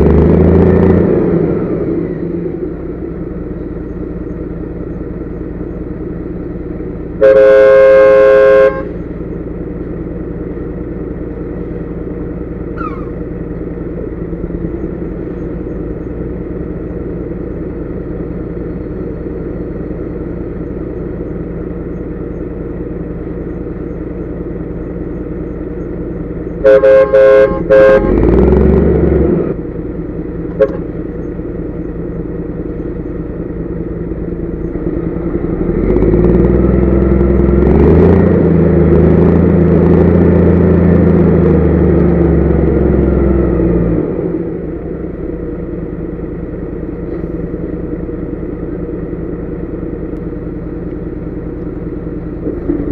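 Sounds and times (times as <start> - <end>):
truck diesel engine running: 0.0 - 52.9
loud horn blasts: 7.2 - 9.1, 26.6 - 28.4, 30.5 - 30.9.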